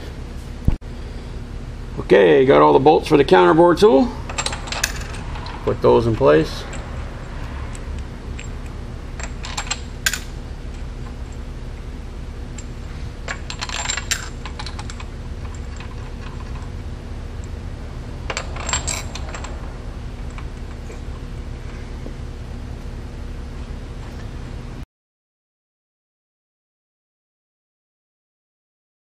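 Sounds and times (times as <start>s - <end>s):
steady low hum: 0.0s - 24.8s
metallic clinks of steel bolts: 4.2s - 6.9s, 8.4s - 10.4s, 18.3s - 19.6s.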